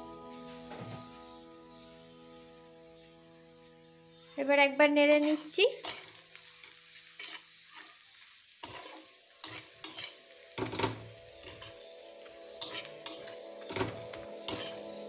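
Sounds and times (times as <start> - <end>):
faint sizzle of frying: 0.0 - 15.0
metal spatula scraping pan: 5.1 - 8.0, 8.6 - 12.0, 12.6 - 15.0.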